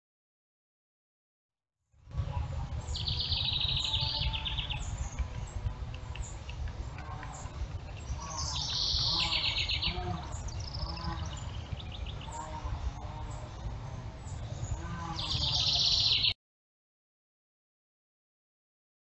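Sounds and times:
steady low rumble: 2.0 - 16.3
songbird trilling: 2.8 - 12.6, 14.3 - 16.3.

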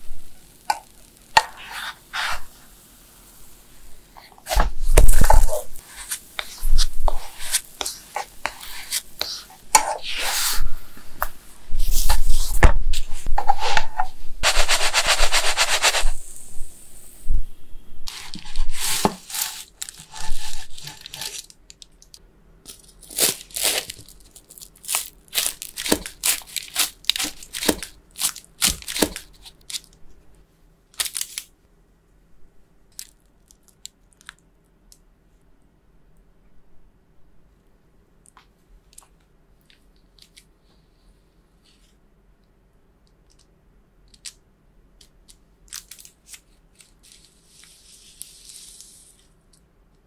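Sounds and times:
bread scraping in pan: 1.4 - 2.6, 4.4 - 10.7, 11.8 - 16.2, 18.1 - 21.4
knife crunching through crisp crust: 18.1 - 21.5, 22.7 - 30.0.

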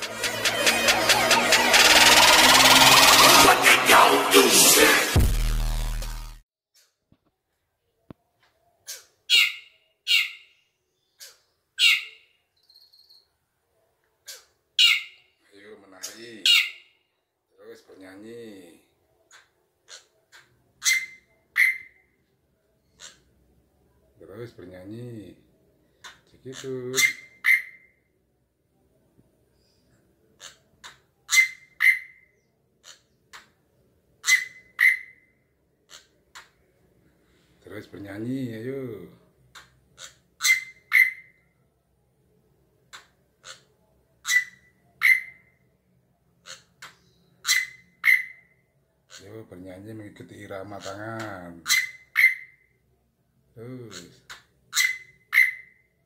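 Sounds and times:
bird giving harsh calls: 0.0 - 4.4, 16.0 - 16.9, 26.0 - 27.9, 31.3 - 33.1, 34.2 - 35.3, 40.0 - 41.4, 44.2 - 45.5, 47.4 - 48.5, 51.6 - 52.6, 53.9 - 55.8
bird singing: 9.3 - 13.3.

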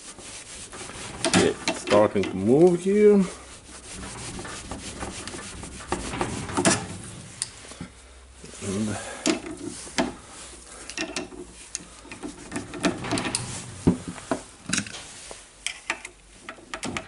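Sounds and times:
hand tools clicking and scraping on metal: 0.2 - 7.8, 8.5 - 17.0.

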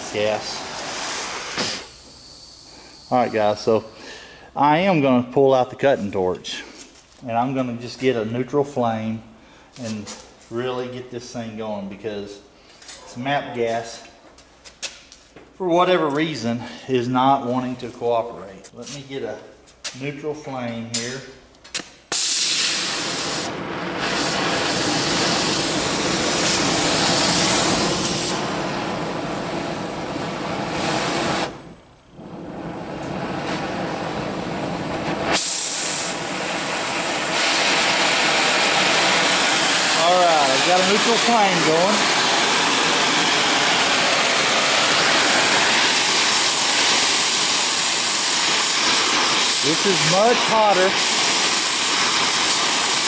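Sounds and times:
cutting torch flame hissing: 0.0 - 5.0, 22.1 - 53.0.

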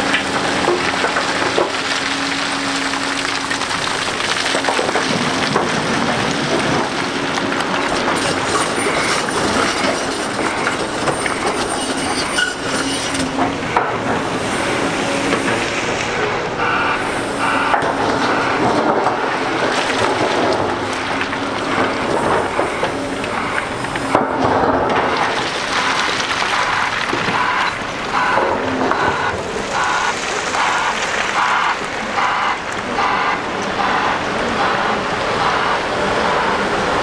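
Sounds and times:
heavy machinery running: 0.0 - 37.0
knocks and scraping: 4.5 - 35.8
short squeals: 8.8 - 13.3.

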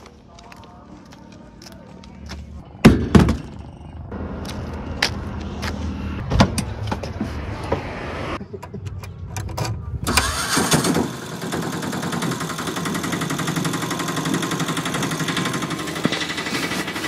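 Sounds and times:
auto-rickshaw engine idling: 10.0 - 17.0.

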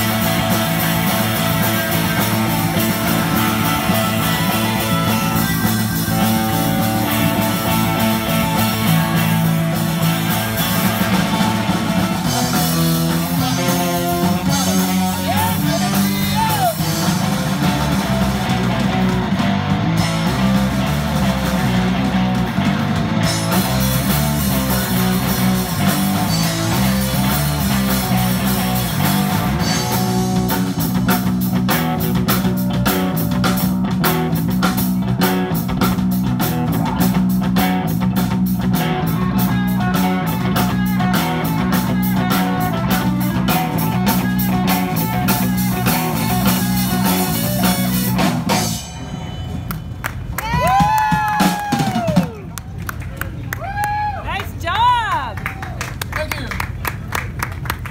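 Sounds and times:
fast drum beat: 0.0 - 49.0, 50.4 - 52.4
electric guitar: 0.0 - 52.4
live rock band: 0.0 - 55.2.

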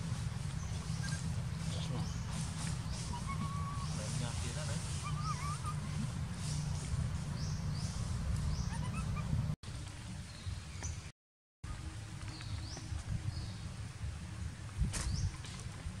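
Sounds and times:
steady low rumble: 0.0 - 10.7.

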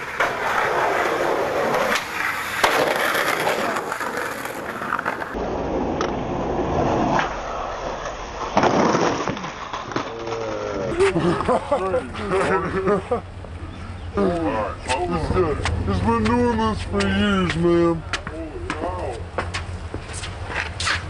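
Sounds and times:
skateboard clacking on pavement: 0.0 - 5.4
skateboard wheels rolling on concrete: 0.0 - 21.0.

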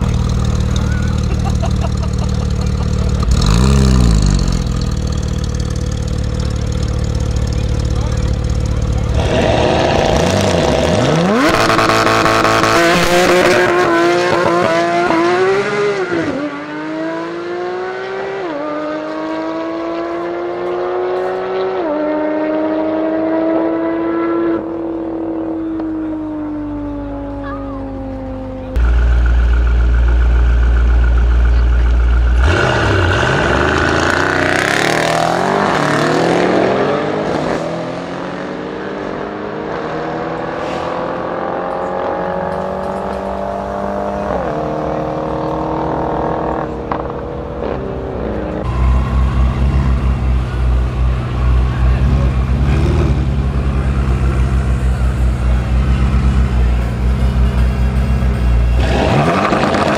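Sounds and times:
cars accelerating away hard: 0.0 - 5.2, 7.6 - 28.6, 32.3 - 57.2, 58.7 - 59.9
car engines revving: 0.0 - 59.9.

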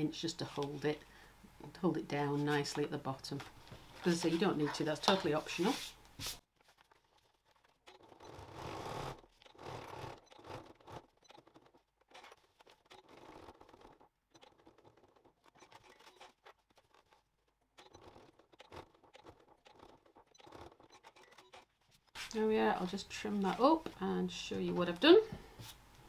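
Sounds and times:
canvas fabric rustling and scraping: 3.8 - 14.0.

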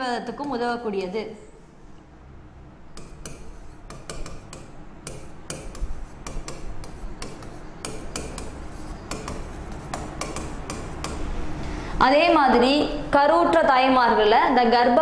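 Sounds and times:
stylus tapping on glass: 3.0 - 11.3.

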